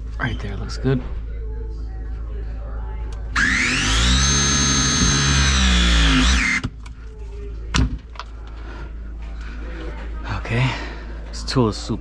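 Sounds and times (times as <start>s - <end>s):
press tool motor whining: 3.4s - 6.7s.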